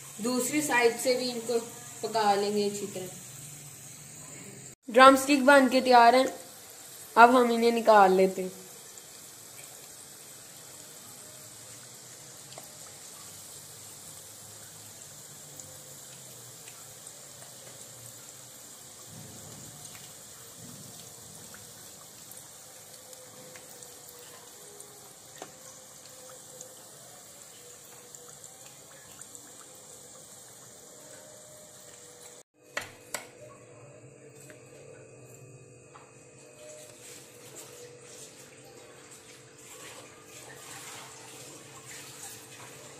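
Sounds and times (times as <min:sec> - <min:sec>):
chicken deep-frying in oil: 0:00.0 - 0:32.5, 0:36.6 - 0:42.9.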